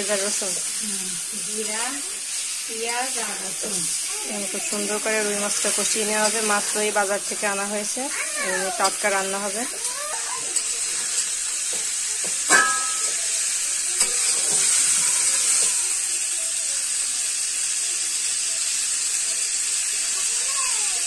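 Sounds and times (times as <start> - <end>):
fish sizzling in hot oil: 0.0 - 21.0
metal spatula clanging on pan: 12.4 - 13.4.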